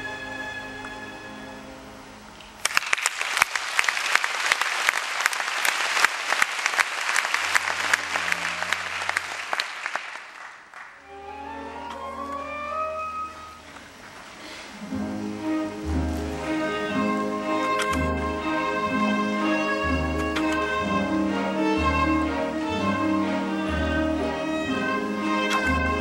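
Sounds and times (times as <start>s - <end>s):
audience applauding: 2.6s - 11.1s
strings playing rising line: 7.4s - 9.6s
orchestral chord: 11.0s - 13.8s, 14.8s - 26.0s.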